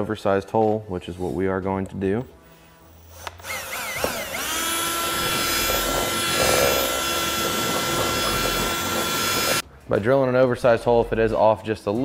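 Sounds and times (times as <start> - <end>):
cordless drill whining: 3.2 - 9.6.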